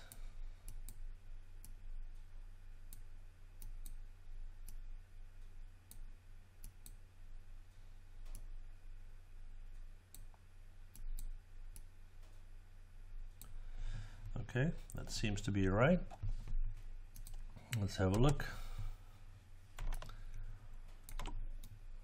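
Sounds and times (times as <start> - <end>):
low electrical hum: 0.0 - 22.0
computer mouse clicks: 2.9 - 4.0, 10.9 - 11.9, 16.1 - 18.4, 19.8 - 21.8.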